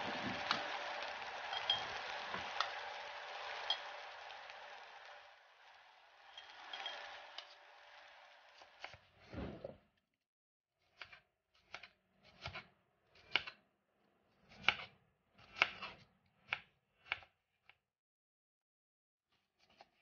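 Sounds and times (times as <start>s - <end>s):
knife slicing onion on board: 10.8s - 13.6s, 14.4s - 17.4s.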